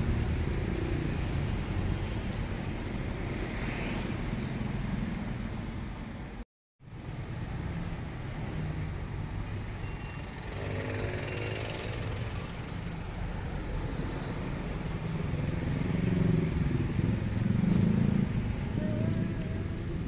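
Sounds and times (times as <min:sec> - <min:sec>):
traffic rumble: 0:00.0 - 0:20.0
engine passing by: 0:10.2 - 0:20.0.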